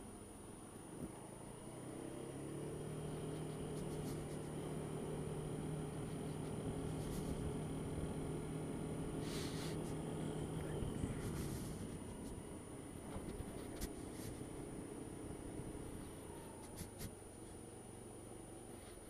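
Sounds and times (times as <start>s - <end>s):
scooter engine: 0.0s - 18.7s
brief hiss: 9.2s - 10.0s.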